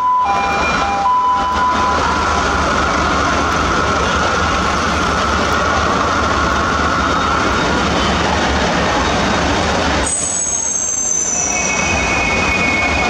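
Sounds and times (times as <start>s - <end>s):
truck engine running: 0.2s - 10.2s
high whistling tone: 10.0s - 13.0s.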